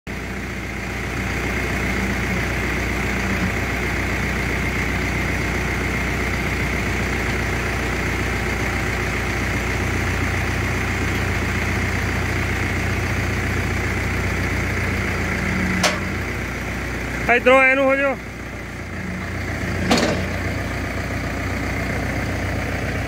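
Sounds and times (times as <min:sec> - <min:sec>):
tractor engine idling: 0:00.1 - 0:23.0
hydraulics lifting and lowering: 0:14.4 - 0:17.2, 0:18.4 - 0:20.7.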